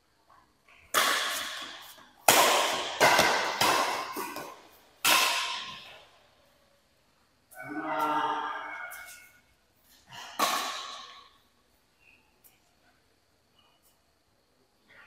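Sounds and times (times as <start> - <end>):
racket striking shuttlecock: 0.9 - 6.0, 10.4 - 11.2.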